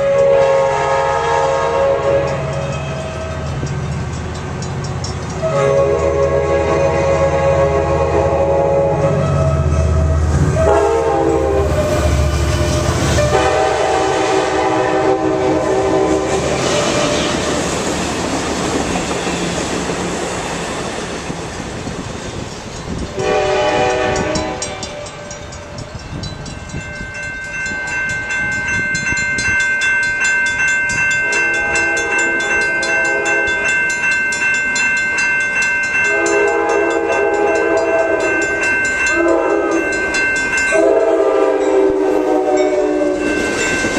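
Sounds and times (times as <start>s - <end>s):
train air horn blasts: 0.0s - 3.5s, 5.4s - 17.6s, 23.1s - 25.9s, 31.2s - 33.7s, 36.1s - 38.5s, 39.1s - 40.0s, 40.7s - 43.5s
crossing warning bells ringing: 0.0s - 43.9s
train passing rumble: 0.0s - 43.9s.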